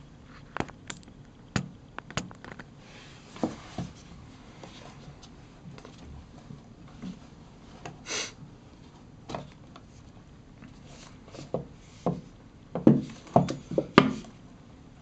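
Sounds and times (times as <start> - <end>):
sharp knocks and clicks: 0.6 - 2.7.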